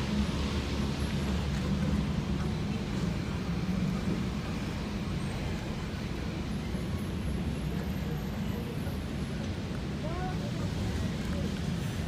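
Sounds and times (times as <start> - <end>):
low traffic rumble: 0.0 - 12.0.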